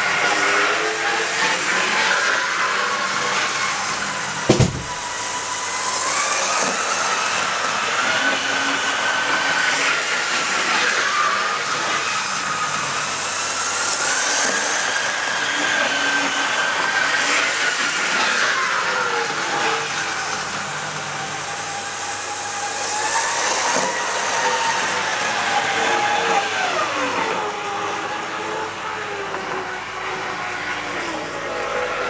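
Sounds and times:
train running noise: 0.0 - 5.4
model train motor whine: 0.0 - 32.0
sharp thump: 4.5 - 5.0.

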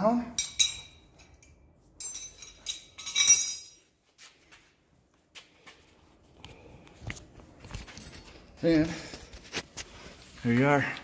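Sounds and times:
wrench clinking on metal: 0.3 - 3.9
shuffling and handling noises: 1.9 - 11.0.

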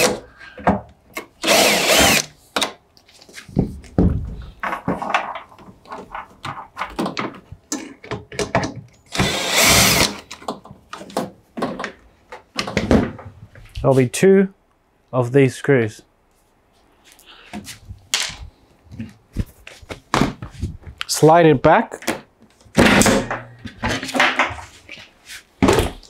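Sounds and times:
cordless drill whirring: 1.4 - 2.3, 9.1 - 10.2.

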